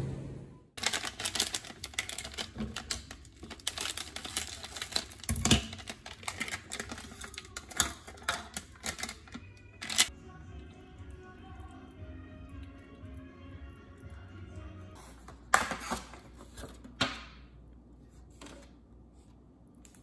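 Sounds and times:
plastic packet crinkling: 0:00.8 - 0:10.1.

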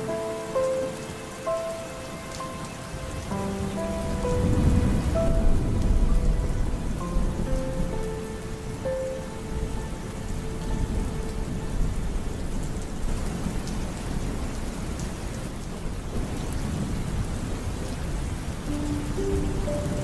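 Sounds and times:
soft melody notes: 0:00.0 - 0:13.7, 0:18.6 - 0:20.0
heavy rain: 0:00.0 - 0:20.0
rolling thunder: 0:00.9 - 0:20.0.

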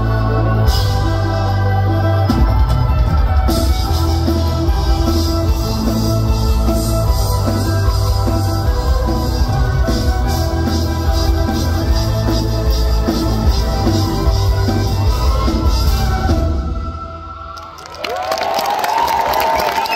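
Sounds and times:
drum kit: 0:00.0 - 0:16.9
electric guitar: 0:00.0 - 0:17.0
electric violin: 0:00.0 - 0:17.4.

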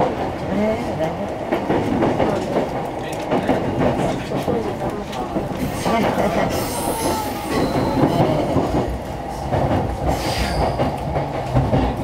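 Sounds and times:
rumble of train wheels on rails: 0:00.0 - 0:12.0
high wheel squeal: 0:06.6 - 0:08.4, 0:10.1 - 0:10.9.

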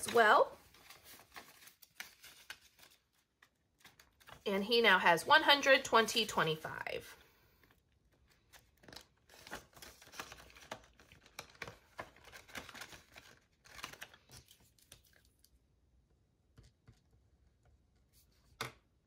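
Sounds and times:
paper banknotes rustling: 0:00.0 - 0:04.4, 0:08.2 - 0:15.2.

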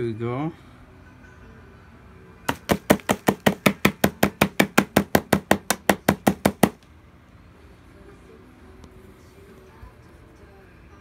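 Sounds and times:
plastic dustbin knocking: 0:02.5 - 0:06.8.

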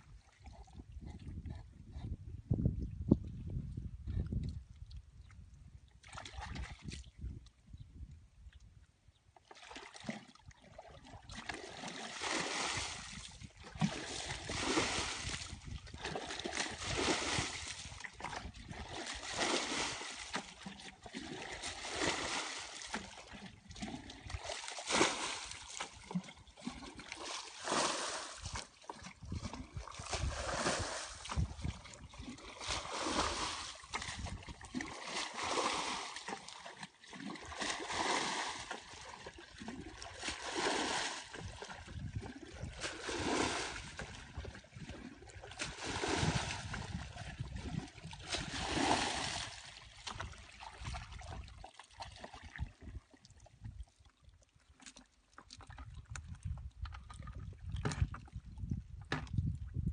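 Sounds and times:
water splashing from bucket: 0:09.5 - 0:53.2.

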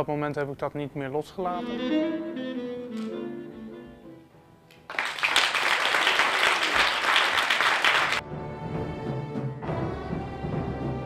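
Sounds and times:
instrumental music: 0:01.4 - 0:05.0
audience applause: 0:04.9 - 0:08.2.

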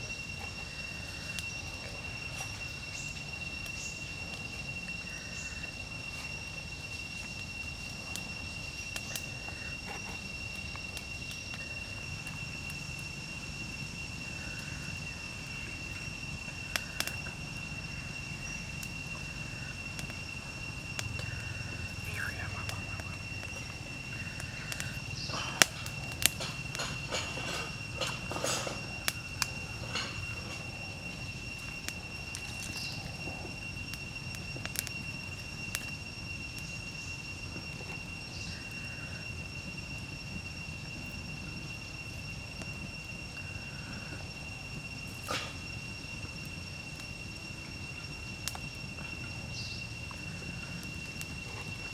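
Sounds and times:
fire crackles: 0:00.0 - 0:51.9
high-pitched insect drone: 0:00.0 - 0:51.9
high-pitched whine: 0:00.0 - 0:51.9
wood fire burning: 0:00.0 - 0:51.9
fire sharp pops: 0:14.3 - 0:36.8, 0:45.0 - 0:47.1.

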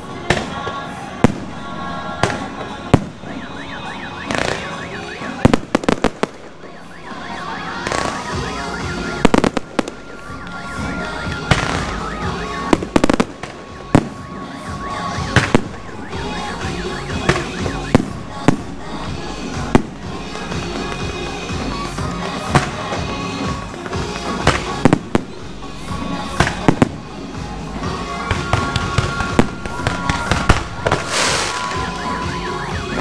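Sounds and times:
firework crackling: 0:00.0 - 0:33.0
firework shells bursting: 0:28.7 - 0:31.8.

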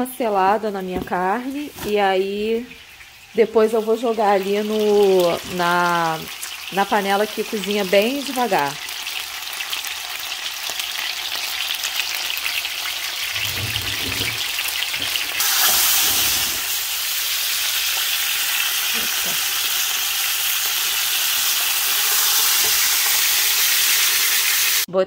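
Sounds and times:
meat sizzling in oil: 0:01.5 - 0:24.9.

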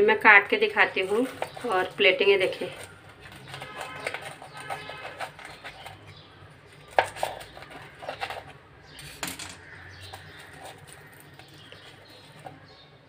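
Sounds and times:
knife crunching through fried crust: 0:01.0 - 0:02.0, 0:02.6 - 0:12.7.

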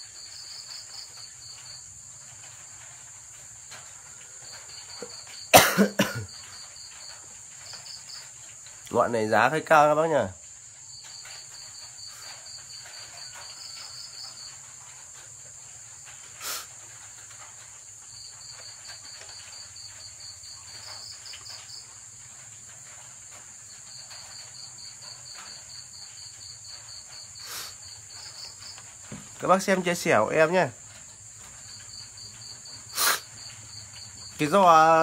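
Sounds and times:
crickets chirping: 0:00.0 - 0:35.0
high-pitched insect trill: 0:00.0 - 0:35.0.

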